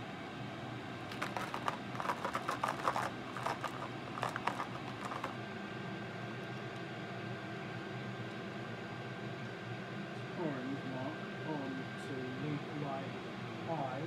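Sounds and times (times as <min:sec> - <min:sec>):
metal parts rattling in plastic tub: 0:01.1 - 0:05.4.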